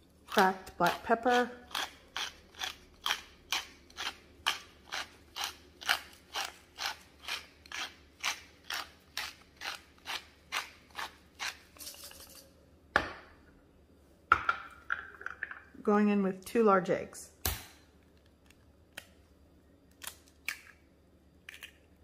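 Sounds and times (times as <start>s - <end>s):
pepper mill grinding: 0.3s - 12.5s.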